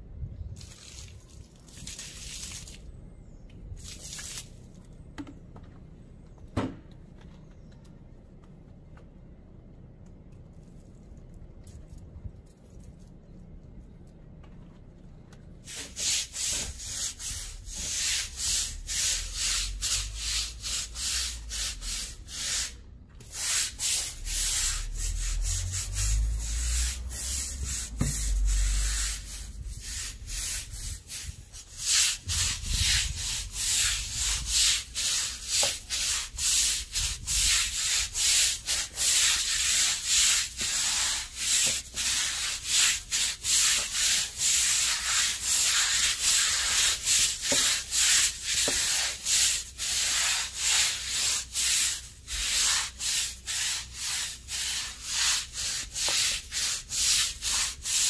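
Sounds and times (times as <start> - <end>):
brush scrubbing wet concrete: 15.6 - 58.0.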